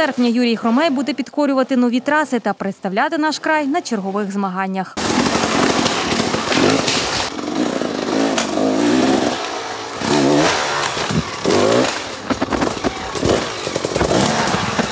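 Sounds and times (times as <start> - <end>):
motorcycle engine revving: 5.0 - 14.9
knocks and clatter: 10.9 - 14.9.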